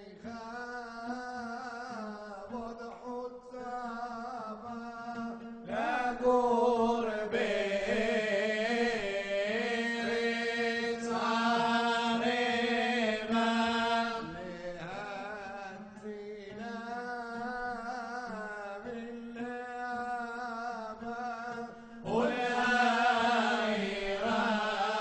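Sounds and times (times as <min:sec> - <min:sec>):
man chanting a hymn: 0:05.2 - 0:16.5.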